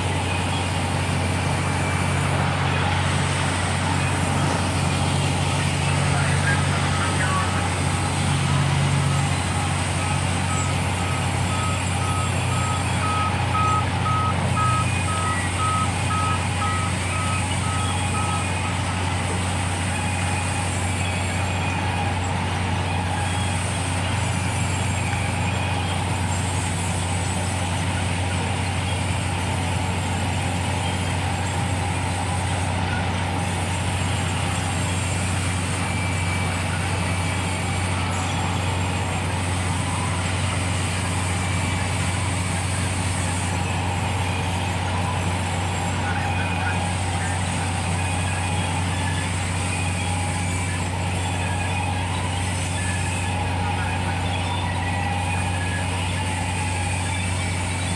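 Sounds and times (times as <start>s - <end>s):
high electronic beeps: 0.0s - 19.1s.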